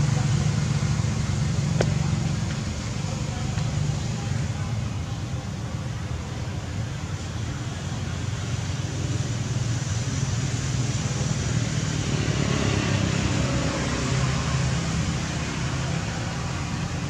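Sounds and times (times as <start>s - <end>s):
low rumble with hiss: 0.0s - 17.0s.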